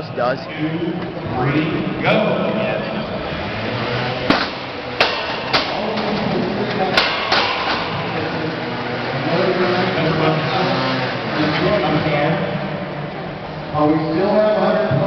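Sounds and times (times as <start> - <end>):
crowd chatter: 0.0 - 15.0.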